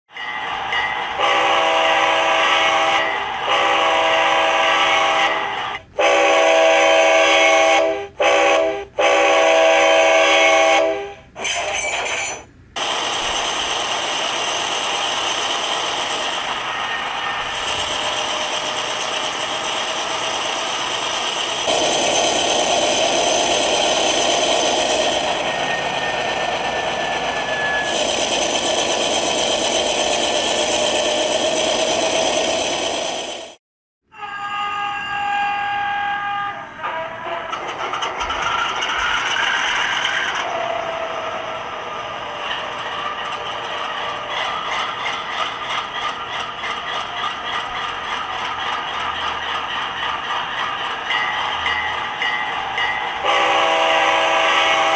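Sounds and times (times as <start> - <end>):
diesel horn blasts: 1.2 - 11.5, 34.1 - 37.6, 53.2 - 54.9.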